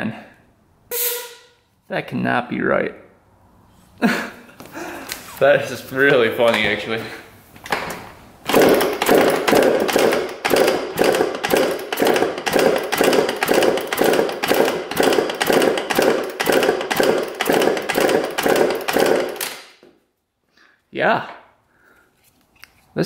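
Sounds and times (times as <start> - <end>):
two-stroke engine kickstarted: 8.4 - 19.6.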